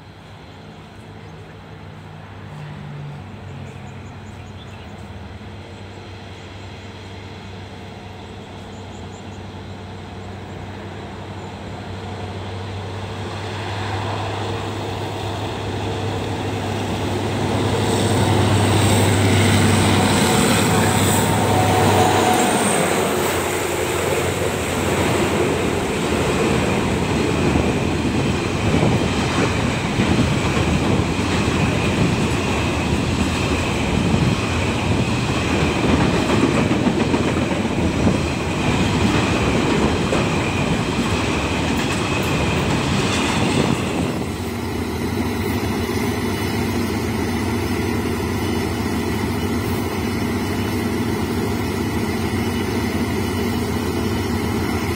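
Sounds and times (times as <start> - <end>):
diesel locomotive passing: 0.0 - 54.9
diesel locomotive idling: 3.6 - 54.9
train wheels clattering on rails: 14.0 - 54.9.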